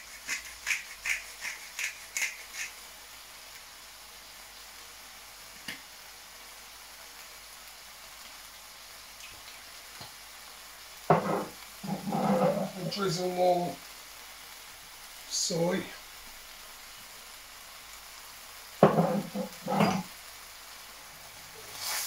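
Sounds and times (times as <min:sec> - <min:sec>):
seasoning shaker shaking: 0:00.0 - 0:03.2, 0:11.1 - 0:13.2, 0:18.8 - 0:20.2, 0:21.6 - 0:22.0.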